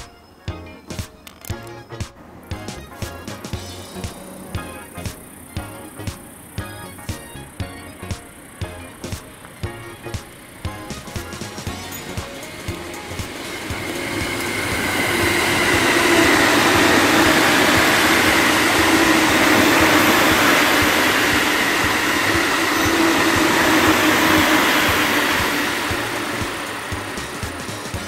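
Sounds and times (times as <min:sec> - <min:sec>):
train rumbling past: 0:08.2 - 0:28.0.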